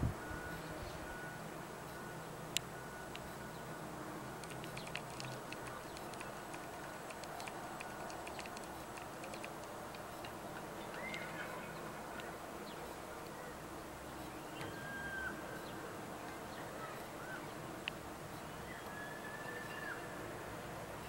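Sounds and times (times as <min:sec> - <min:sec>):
steady outdoor hiss: 0:00.0 - 0:21.0
faint ticks: 0:04.4 - 0:13.4.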